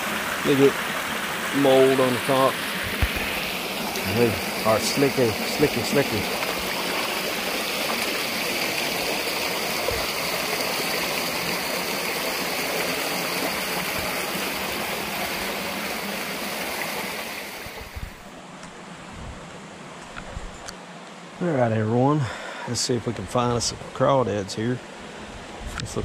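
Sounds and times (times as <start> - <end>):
creek water rushing over rocks: 0.0 - 18.3.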